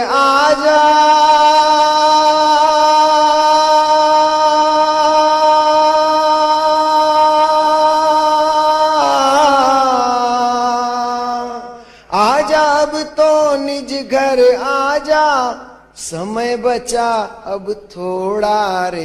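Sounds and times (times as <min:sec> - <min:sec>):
man singing long held note: 0:00.0 - 0:13.2.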